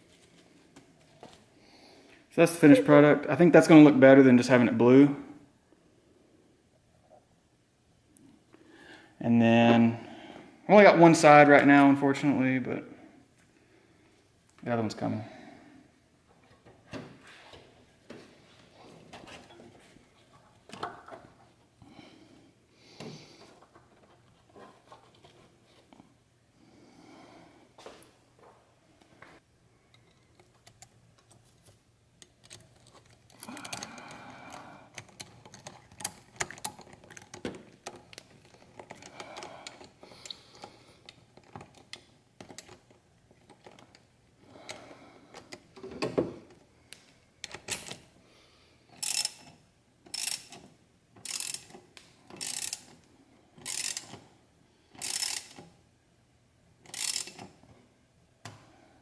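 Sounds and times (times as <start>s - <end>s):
socket ratchet ratcheting: 49.0s - 53.0s, 53.6s - 54.2s, 55.0s - 55.7s, 56.8s - 57.6s.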